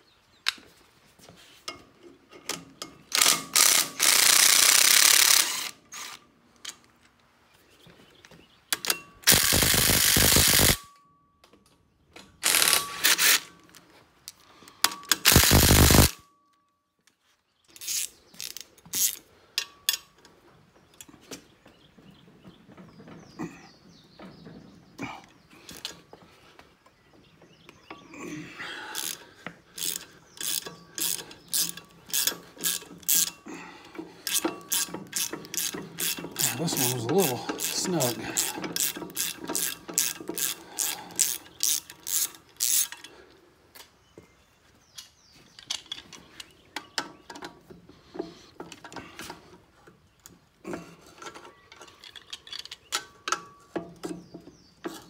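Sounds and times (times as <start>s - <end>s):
ratchet wrench clicking: 3.1s - 6.1s, 9.3s - 10.8s, 12.4s - 13.4s, 15.1s - 16.2s, 17.8s - 19.2s, 29.8s - 33.4s, 34.2s - 43.1s
cordless driver running: 9.3s - 10.8s, 15.3s - 16.1s, 34.3s - 42.9s.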